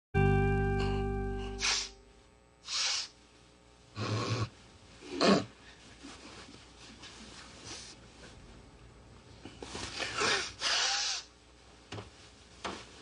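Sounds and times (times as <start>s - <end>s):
music chord: 0.2s - 2.2s
man snoring and snorting: 4.0s - 4.5s.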